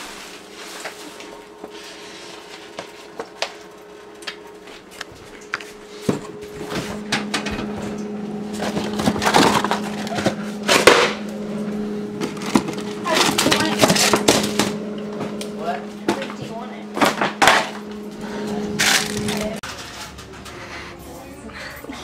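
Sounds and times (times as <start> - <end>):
lower hum: 0.0 - 19.6
refrigerator hum: 0.0 - 22.0
packaging rustling and clatter: 8.5 - 11.1, 12.2 - 14.8, 18.8 - 20.4.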